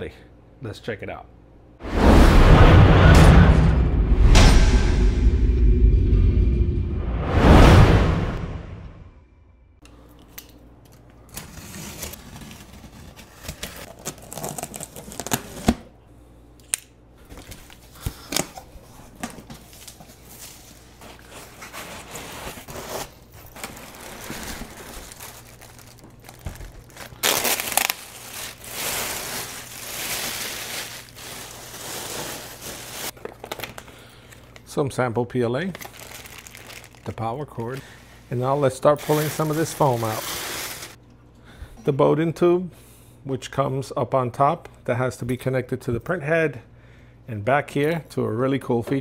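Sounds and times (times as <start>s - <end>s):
whoosh sound effect: 1.8s - 9.6s
plastic wrap rustling and crinkling: 11.4s - 15.7s, 17.2s - 34.7s, 35.5s - 41.0s
cardboard scraping: 20.9s - 25.4s.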